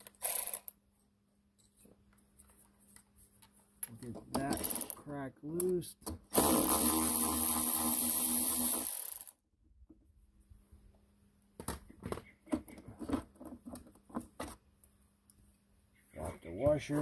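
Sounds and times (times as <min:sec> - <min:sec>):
cordless electric ratchet running: 0:06.3 - 0:09.3.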